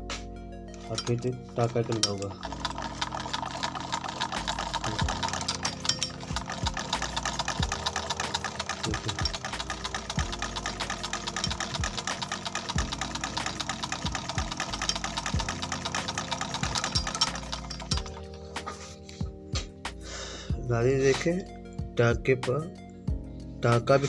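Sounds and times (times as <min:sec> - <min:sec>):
sewing machine running: 0:01.6 - 0:18.5.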